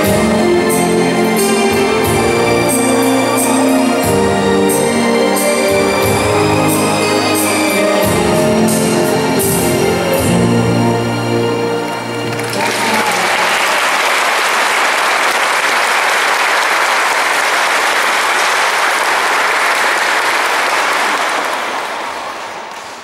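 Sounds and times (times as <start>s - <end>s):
waltz music: 0.0s - 13.5s
audience applause: 12.2s - 23.0s.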